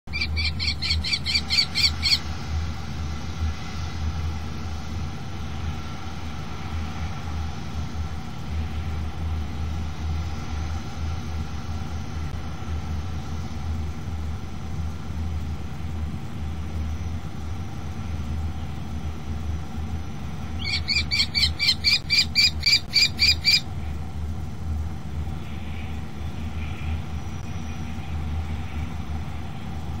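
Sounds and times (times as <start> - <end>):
steady low hum: 0.0 - 30.0
kestrel shrill calls: 0.1 - 2.2, 20.6 - 23.7.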